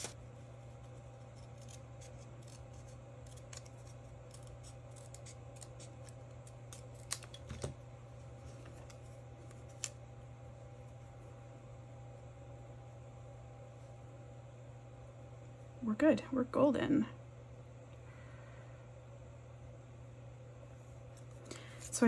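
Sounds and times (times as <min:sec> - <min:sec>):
scissors snipping paper: 0:01.2 - 0:07.7.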